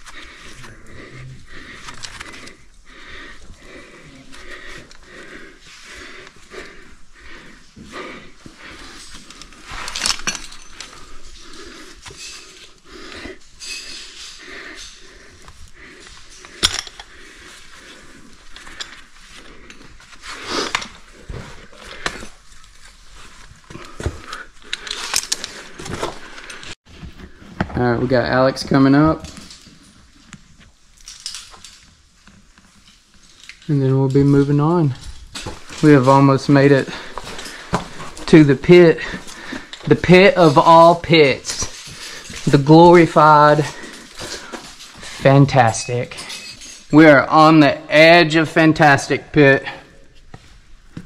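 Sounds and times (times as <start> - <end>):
hard breathing: 0.0 - 27.7, 34.3 - 47.0
rope and gear rustling: 0.0 - 47.0
metal climbing hardware clinking: 8.7 - 20.1, 31.0 - 47.0.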